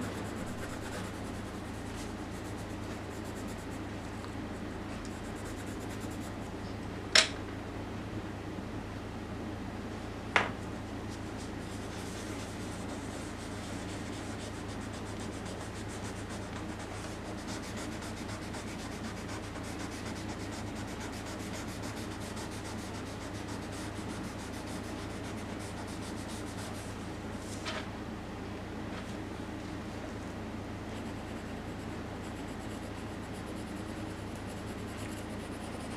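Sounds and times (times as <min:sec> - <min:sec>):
hand rubbing over paper: 0:00.0 - 0:03.8
steady low hum: 0:00.0 - 0:35.9.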